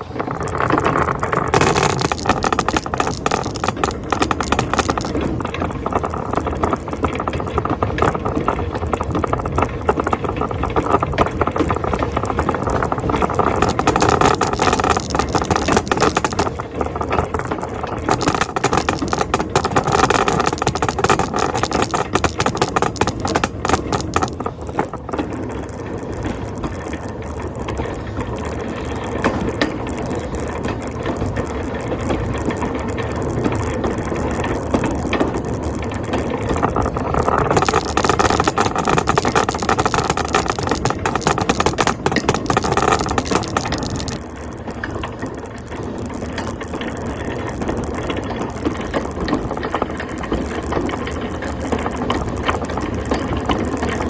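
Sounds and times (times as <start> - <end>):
shopping cart rattling on pavement: 0.0 - 54.0.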